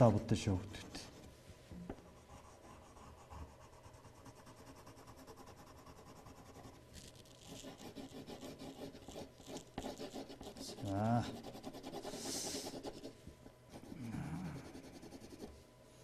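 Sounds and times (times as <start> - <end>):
pencil scratching on paper: 2.2 - 13.1, 13.7 - 15.5.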